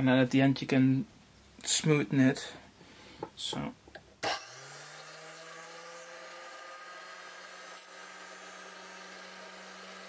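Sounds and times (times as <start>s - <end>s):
drill press motor humming: 4.2s - 10.0s.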